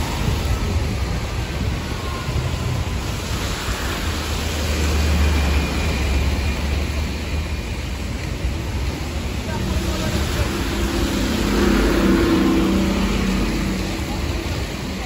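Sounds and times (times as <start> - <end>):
bus engine drone: 0.0 - 15.0
tyres hissing on wet road: 0.0 - 15.0.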